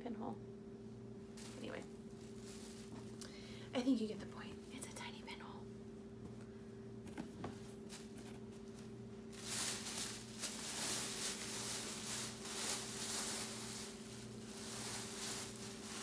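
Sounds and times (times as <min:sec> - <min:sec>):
faint steady hum: 0:00.0 - 0:16.0
clothes rustling: 0:01.4 - 0:03.2, 0:07.1 - 0:16.0.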